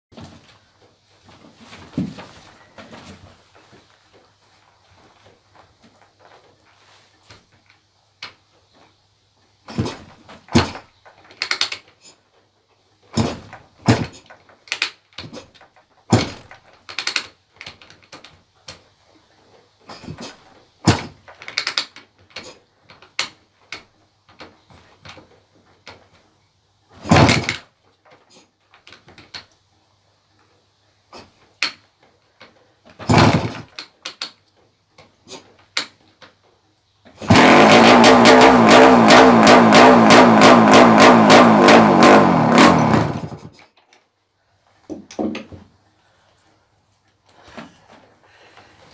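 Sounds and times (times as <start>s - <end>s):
kickstarter clunks: 27.0s - 27.6s, 32.9s - 33.8s
two-stroke engine running: 37.2s - 43.5s.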